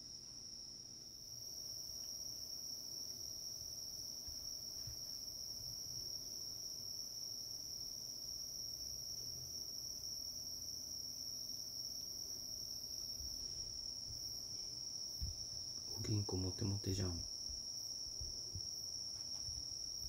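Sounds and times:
insects trilling: 0.0 - 20.0
soft thump: 15.2 - 15.5.

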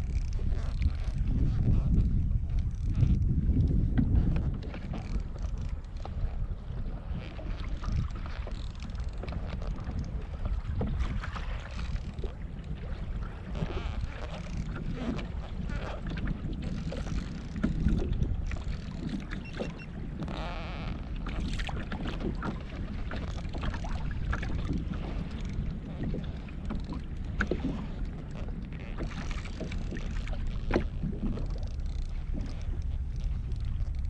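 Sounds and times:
water lapping at kayak hull: 0.0 - 34.0
wind buffeting microphone: 0.0 - 34.0.

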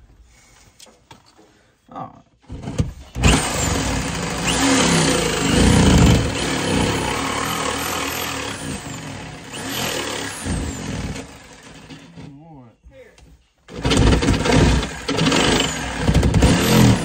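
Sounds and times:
electric jigsaw cutting wall: 2.5 - 12.3, 13.7 - 17.0.

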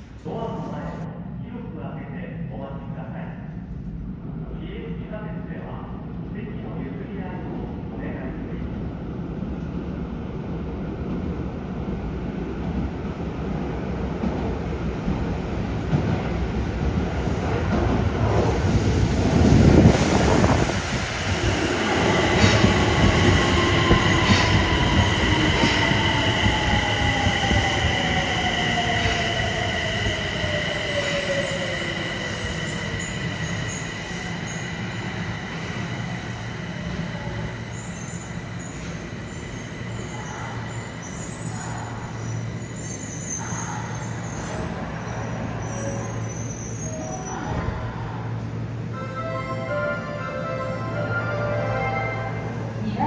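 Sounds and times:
subway train rumble: 0.0 - 53.0
high wheel squeal: 40.9 - 47.5.

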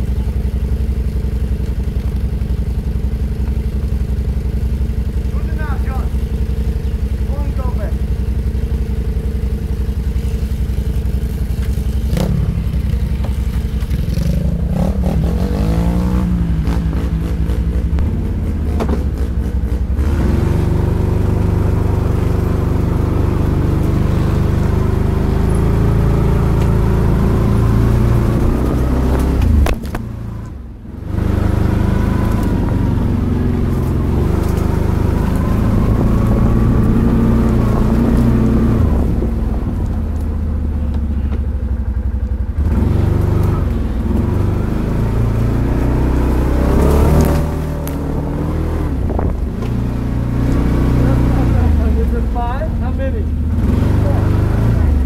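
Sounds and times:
clicks and rattles over bumps: 0.0 - 8.1, 10.1 - 14.7
atv engine revving: 0.0 - 55.0.

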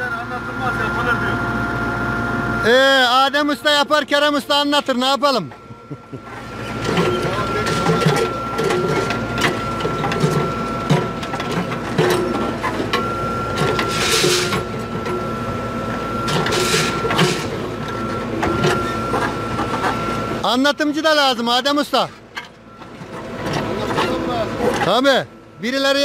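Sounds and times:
diesel engine with high whine: 0.0 - 26.0.

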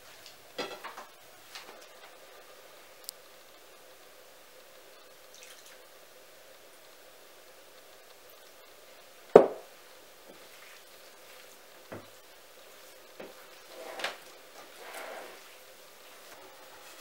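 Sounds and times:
glass bottle set down on table: 9.4 - 9.6.

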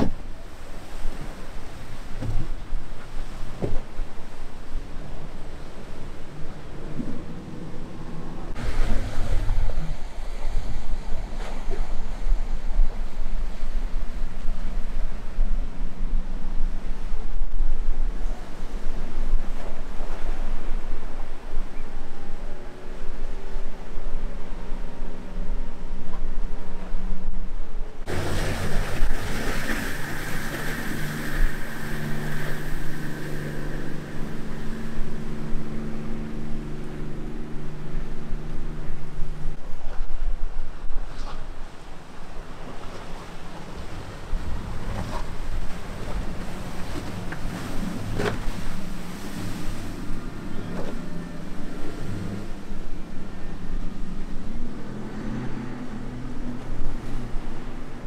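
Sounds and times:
hull splashing through water: 0.0 - 14.0, 28.0 - 40.2, 40.8 - 58.0
boat engines droning: 0.0 - 58.0.

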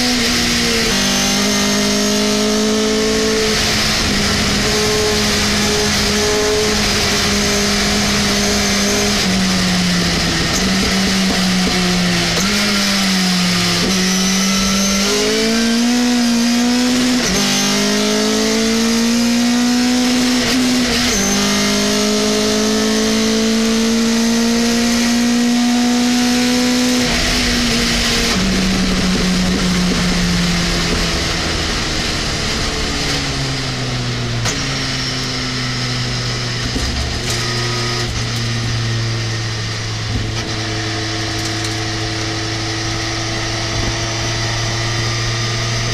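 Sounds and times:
truck engine accelerating and shifting: 0.0 - 45.9.

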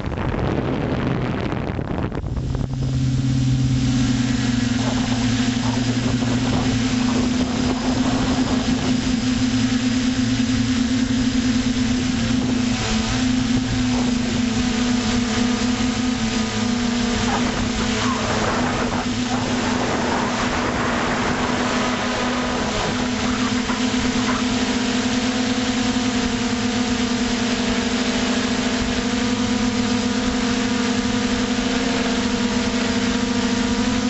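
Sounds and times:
wind rushing: 0.0 - 9.5, 17.6 - 23.8
drone propeller hum: 0.0 - 34.0.

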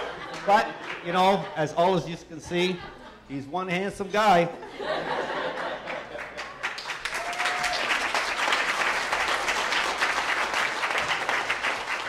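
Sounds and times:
crowd applauding: 5.4 - 12.0.

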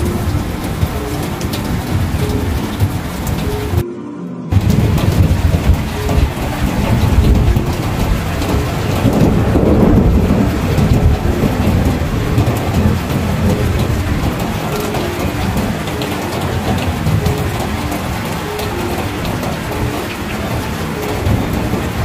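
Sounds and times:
heavy rain pouring: 0.0 - 3.8, 4.5 - 22.0
rolling thunder: 4.5 - 22.0.

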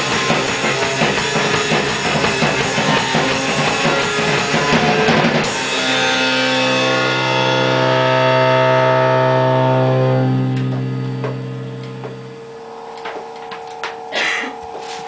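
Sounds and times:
electric guitar chord ringing: 0.0 - 15.0.

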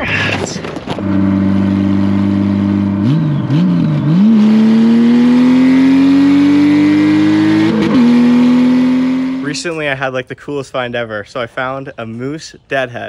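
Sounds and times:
motorcycle engine revving: 0.0 - 9.7.

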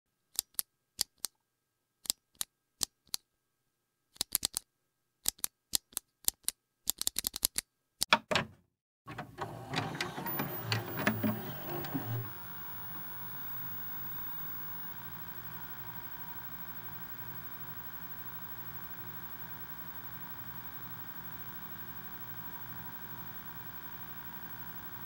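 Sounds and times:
sharp dry clicks: 4.2 - 8.2.

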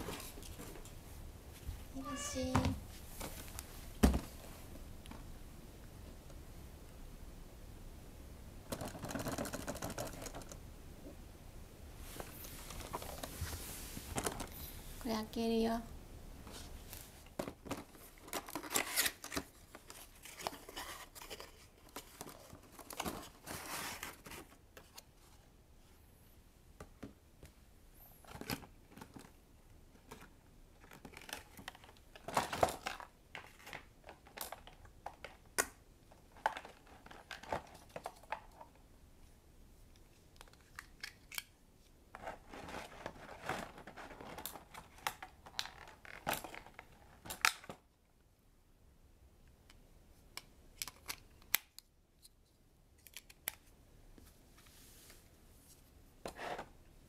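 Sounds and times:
packaging rustling and clicking: 17.3 - 25.0.

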